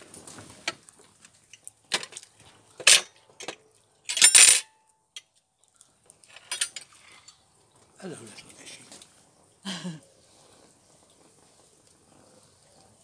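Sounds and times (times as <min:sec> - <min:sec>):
cutlery clinking and scraping on plates: 0:06.3 - 0:07.4.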